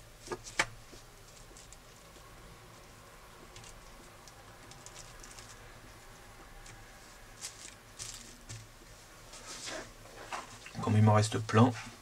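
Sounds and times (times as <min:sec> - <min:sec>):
gloved hands rustling: 0:00.2 - 0:10.6.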